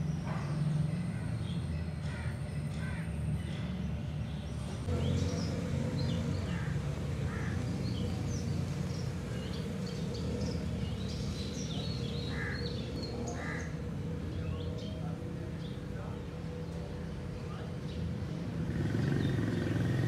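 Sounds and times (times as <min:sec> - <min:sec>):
birds calling: 0:00.0 - 0:20.0.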